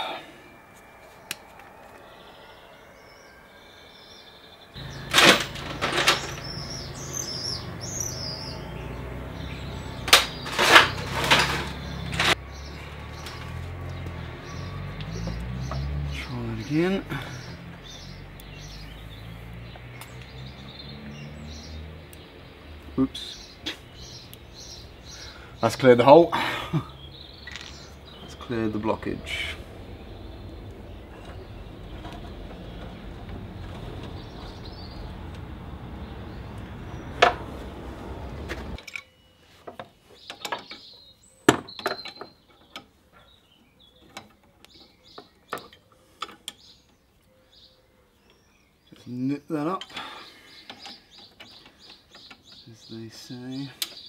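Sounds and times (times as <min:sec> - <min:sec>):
birds chirping: 0:00.0 - 0:54.0
low hum: 0:26.8 - 0:38.8.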